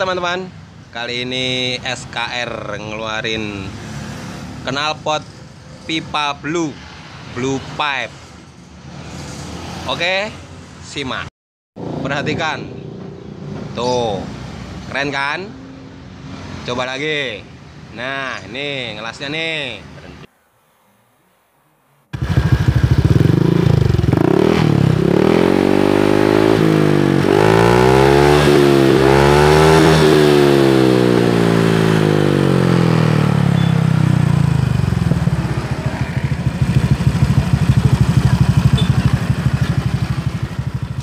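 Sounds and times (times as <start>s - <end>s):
motorcycle engine revving: 22.1s - 41.0s.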